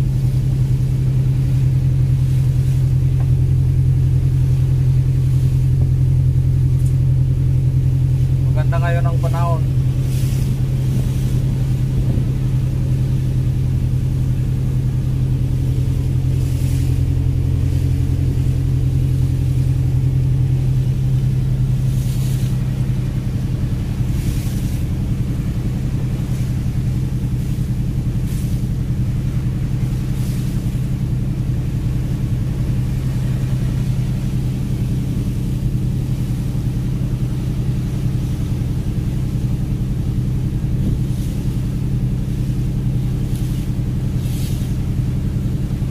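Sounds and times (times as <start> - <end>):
diesel engine droning: 0.0 - 45.9.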